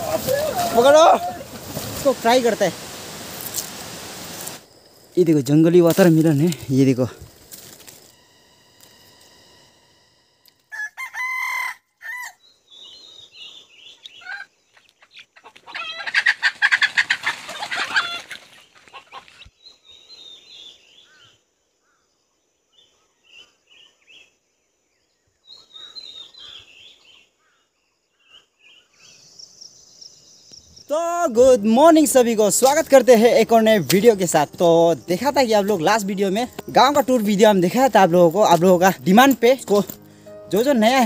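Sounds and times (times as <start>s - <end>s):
rooster crowing: 0.0s - 1.6s, 10.7s - 12.4s
small birds chirping: 12.4s - 16.1s, 16.9s - 39.2s.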